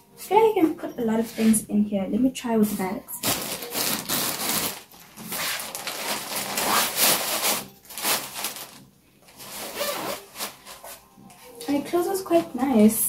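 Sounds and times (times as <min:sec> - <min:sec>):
fabric bag rustling: 0:03.1 - 0:11.8.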